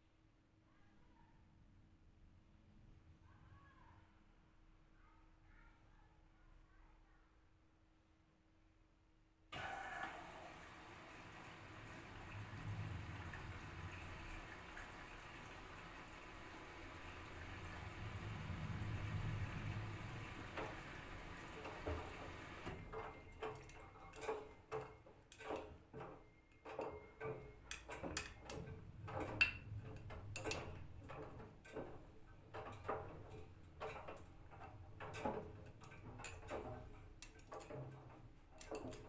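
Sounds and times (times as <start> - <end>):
washing machine drum tumbling: 9.6 - 39.0.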